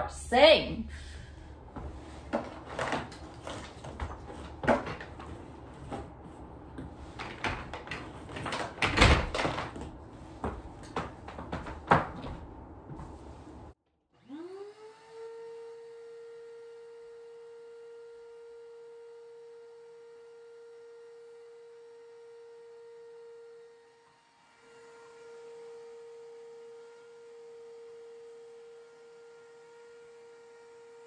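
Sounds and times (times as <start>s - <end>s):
vacuum motor whine: 14.2s - 31.0s.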